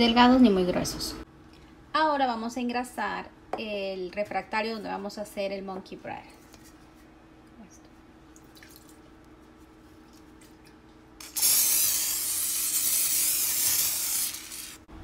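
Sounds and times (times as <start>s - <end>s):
cooking spray hissing: 11.2s - 14.9s.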